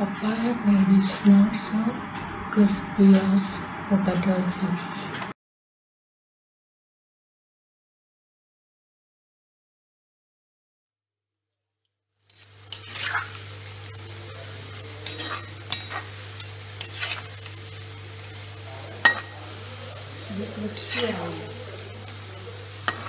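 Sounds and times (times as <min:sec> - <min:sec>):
food sizzling in hot oil: 0:12.2 - 0:23.0
metal spoon scraping a pan: 0:12.3 - 0:23.0.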